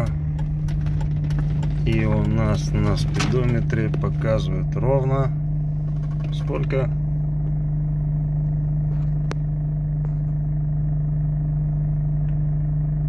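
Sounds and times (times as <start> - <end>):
car engine and tyre drone: 0.0 - 4.3.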